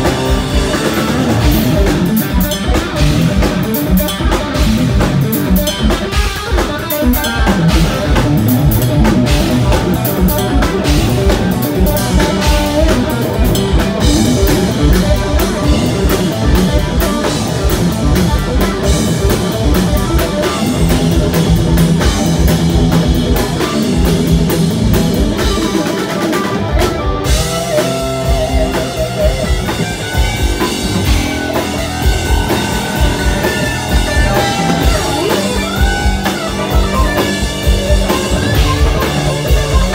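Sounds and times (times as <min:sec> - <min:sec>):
bass guitar: 0:00.0 - 0:39.9
electric guitar: 0:00.0 - 0:39.9.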